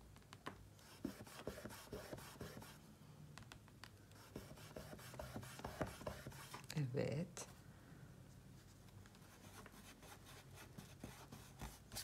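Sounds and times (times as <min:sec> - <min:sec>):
pencil scratching on paper: 0:00.8 - 0:02.8, 0:04.2 - 0:06.6, 0:09.4 - 0:12.0.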